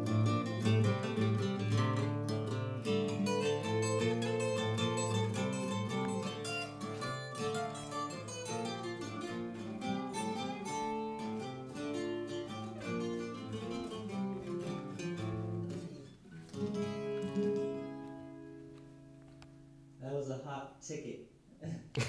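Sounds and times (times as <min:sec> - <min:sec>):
ringing guitar chord: 0:00.0 - 0:19.8
acoustic guitar picked notes: 0:00.0 - 0:20.3.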